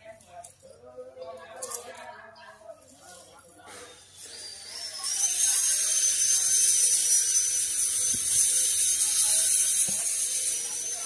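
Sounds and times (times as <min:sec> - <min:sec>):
thin whistling tone: 0:04.1 - 0:11.0.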